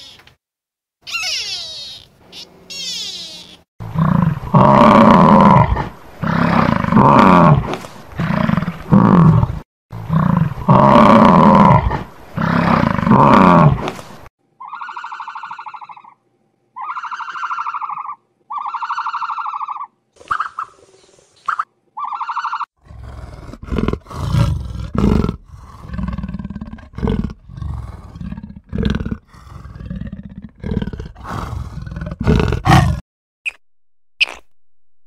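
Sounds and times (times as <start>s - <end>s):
short buzzing animal calls: 1.0s - 3.6s.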